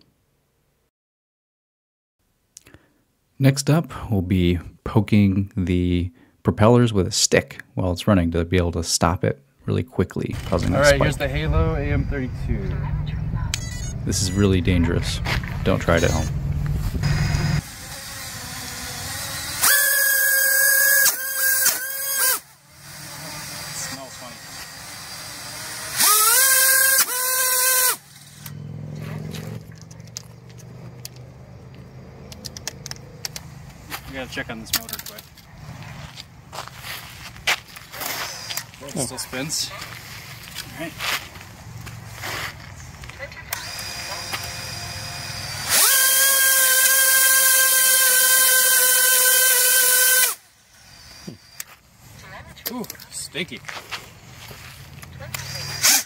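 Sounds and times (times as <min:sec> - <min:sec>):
low hum: 0:10.4 - 0:21.1, 0:28.0 - 0:33.9
drone motor whining: 0:15.4 - 0:33.8, 0:37.9 - 0:39.2, 0:43.5 - 0:51.8, 0:55.2 - 0:56.0.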